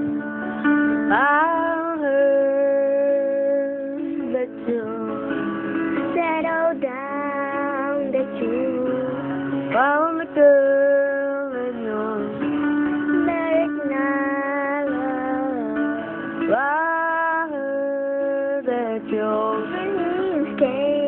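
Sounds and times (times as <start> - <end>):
plucked guitar: 0.0 - 21.0
woman singing long held notes: 6.0 - 12.4, 13.2 - 21.0.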